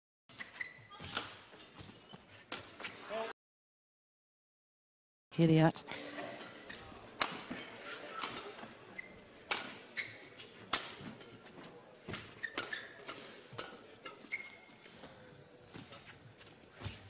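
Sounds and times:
shoes squeaking on court: 0:00.3 - 0:03.1, 0:06.2 - 0:17.0
racket hitting shuttlecock: 0:07.2 - 0:08.7, 0:09.5 - 0:09.8, 0:10.4 - 0:11.4.

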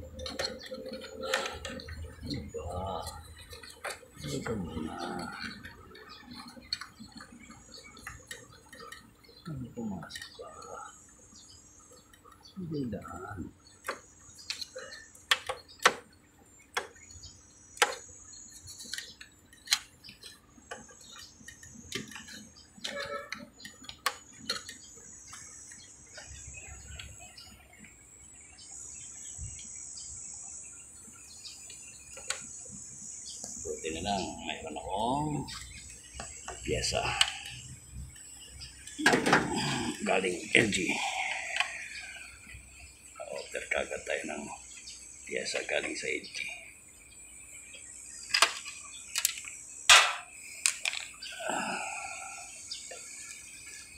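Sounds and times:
clicks and knocks of wiring: 0:00.1 - 0:02.4, 0:03.0 - 0:04.6, 0:13.8 - 0:16.1, 0:17.8 - 0:26.3, 0:48.3 - 0:51.2.

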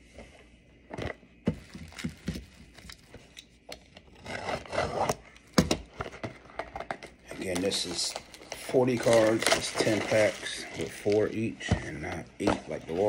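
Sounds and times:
box cutter scraping cardboard: 0:04.1 - 0:05.2.

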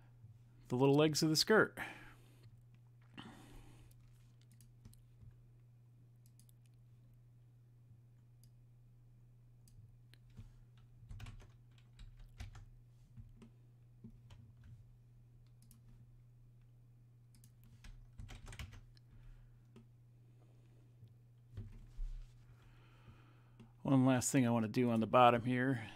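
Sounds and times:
low steady hum: 0:00.0 - 0:25.9
keyboard and mouse clicking: 0:03.9 - 0:05.0, 0:06.2 - 0:06.8, 0:15.4 - 0:15.9, 0:17.3 - 0:19.0.

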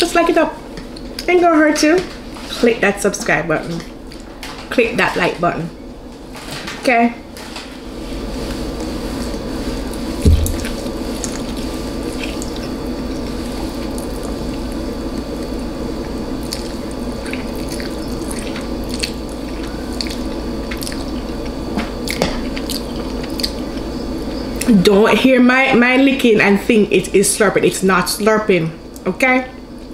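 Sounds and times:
steady low hum: 0:00.0 - 0:29.9
wet chewing and licking: 0:09.9 - 0:23.9
loud knock: 0:10.2 - 0:10.7.

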